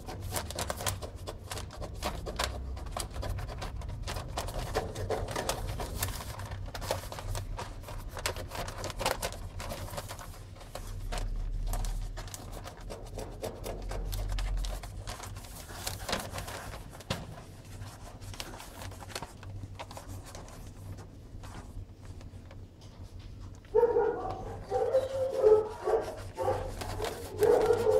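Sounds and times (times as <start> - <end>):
newspaper crinkling and rustling: 0.0 - 27.9
kitten scratching clicks: 24.7 - 27.9.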